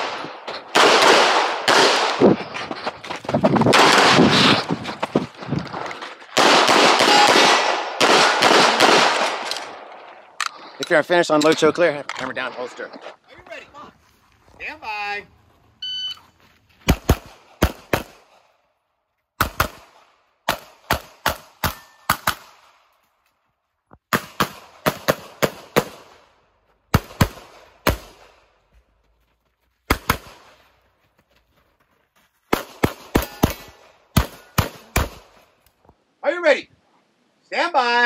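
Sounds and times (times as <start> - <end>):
pistol shots: 0.0 - 2.4, 3.7 - 4.5, 6.4 - 9.9, 16.9 - 18.4, 19.4 - 22.7, 24.1 - 26.2, 26.9 - 28.4, 32.5 - 35.4.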